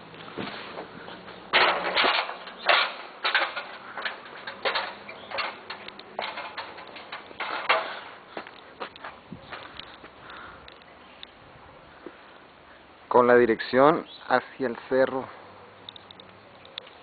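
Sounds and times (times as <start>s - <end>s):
knocks and scraping clatter: 0.2s - 10.1s.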